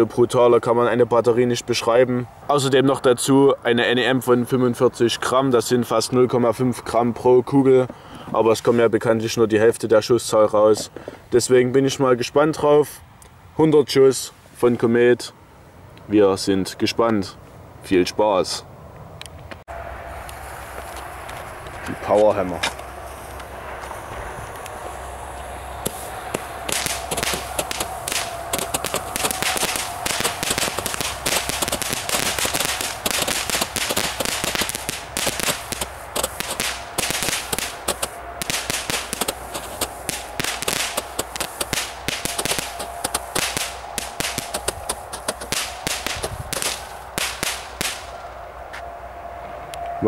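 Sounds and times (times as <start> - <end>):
fuse burning: 22.8 - 48.5
firework launch shots: 25.8 - 48.2
crackling pops: 25.8 - 48.3.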